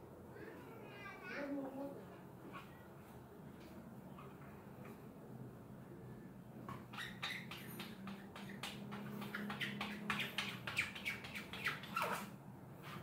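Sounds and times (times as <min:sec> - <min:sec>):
squeegee squeaky scrapes: 0:06.8 - 0:13.0.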